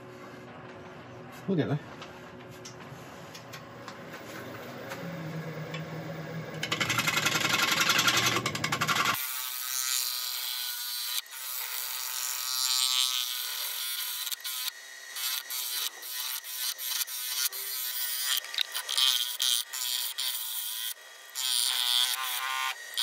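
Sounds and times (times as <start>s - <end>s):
gouge cutting wood on lathe: 6.6s - 23.0s.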